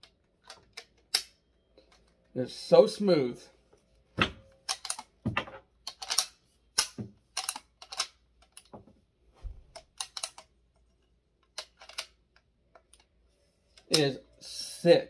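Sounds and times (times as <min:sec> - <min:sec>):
rifle lever metallic clicks: 0:05.9 - 0:08.7, 0:09.8 - 0:10.5.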